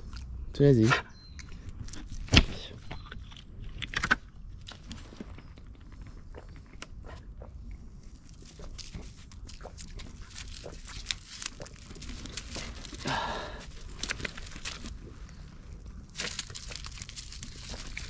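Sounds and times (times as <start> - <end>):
man sighing: 13.0 - 13.6.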